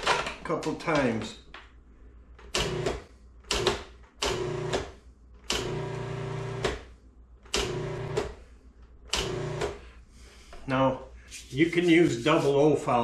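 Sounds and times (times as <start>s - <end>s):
food processor motor whirring: 4.3s - 4.9s, 5.5s - 6.8s.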